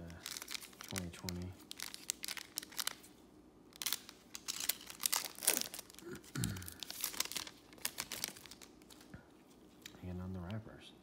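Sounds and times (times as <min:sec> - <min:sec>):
foil wrapper crinkling: 0:00.0 - 0:03.1, 0:03.7 - 0:09.1.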